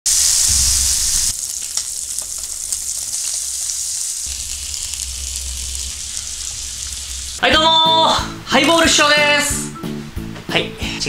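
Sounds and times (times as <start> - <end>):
steak sizzling in a frying pan: 0.1 - 7.5.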